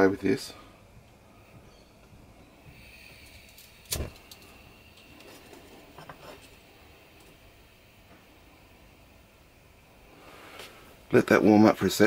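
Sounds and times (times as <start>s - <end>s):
burner hissing: 0.0s - 12.0s.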